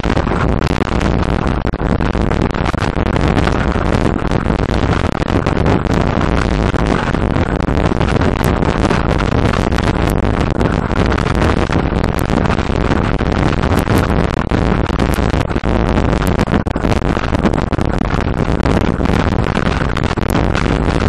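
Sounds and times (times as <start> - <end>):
bicycle road noise on asphalt: 0.0 - 21.0
wind buffeting microphone: 0.0 - 21.0.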